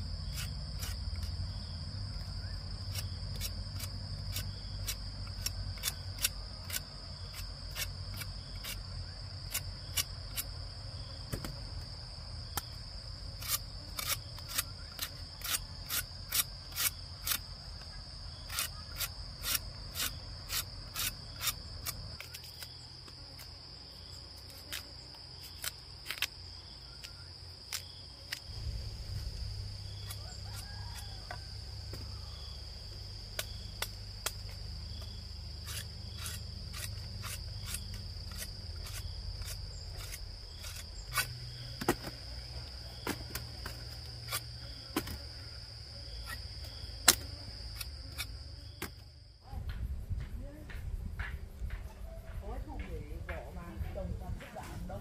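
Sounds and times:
low rumble: 0:28.5 - 0:29.9.

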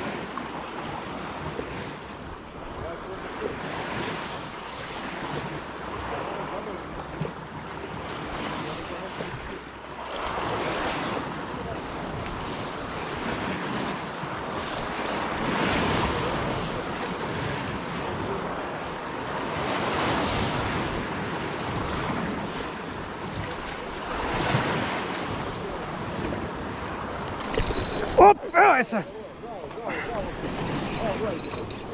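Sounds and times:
sea waves washing: 0:00.0 - 0:31.9
wind on microphone: 0:07.1 - 0:31.9.

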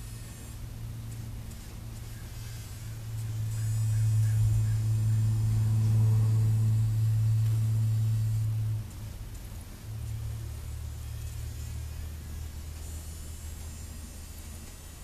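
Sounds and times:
fly buzzing: 0:01.5 - 0:08.7.

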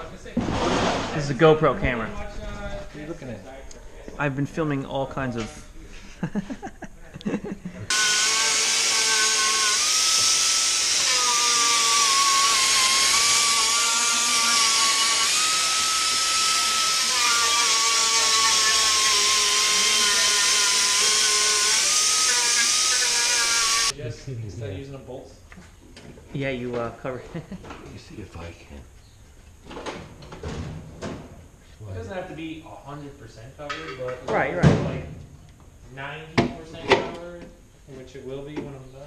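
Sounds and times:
die grinder on metal: 0:07.9 - 0:23.9.

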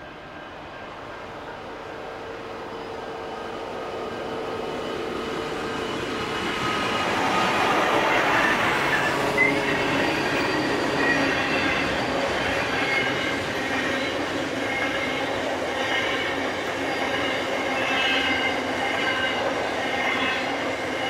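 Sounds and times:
diesel train passing: 0:00.0 - 0:21.0
thin high wheel squeals: 0:08.0 - 0:21.0.

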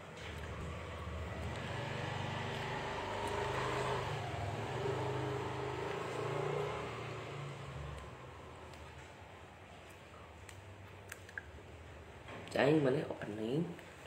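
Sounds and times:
vehicle engine humming: 0:00.0 - 0:10.9.

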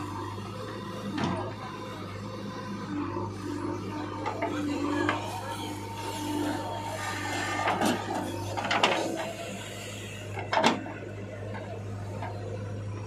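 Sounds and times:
diesel engine running: 0:00.0 - 0:13.0
clunks and knocks: 0:01.0 - 0:01.6, 0:10.4 - 0:10.9.

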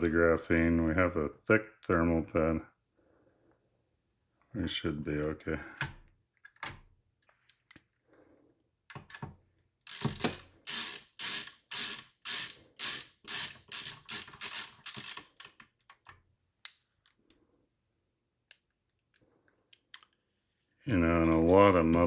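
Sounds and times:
ratcheting screwdriver clicking: 0:09.8 - 0:15.6.

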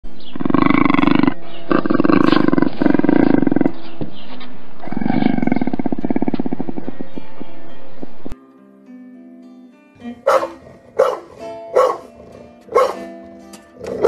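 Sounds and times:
cougar pulsing vocalisation: 0:00.3 - 0:08.4.

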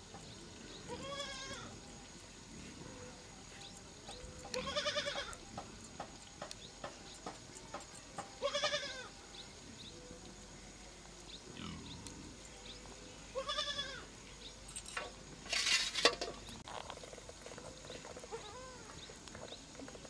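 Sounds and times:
goat bleating: 0:00.9 - 0:01.7, 0:04.5 - 0:05.4, 0:08.4 - 0:09.1, 0:13.4 - 0:14.1.

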